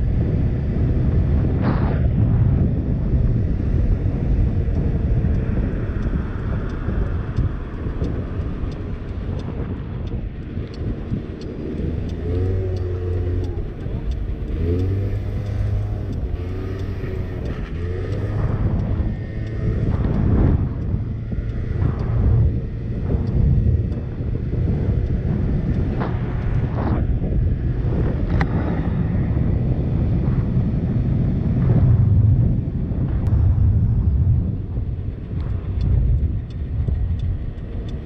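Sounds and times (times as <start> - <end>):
wind rumble on microphone: 0.0 - 38.0
scooter engine revving: 10.8 - 29.5.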